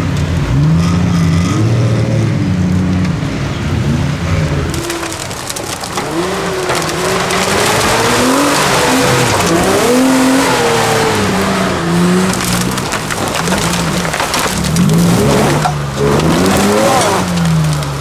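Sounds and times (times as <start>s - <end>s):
suv engine revving: 0.0s - 18.0s
twigs crackling under tyres: 4.6s - 18.0s.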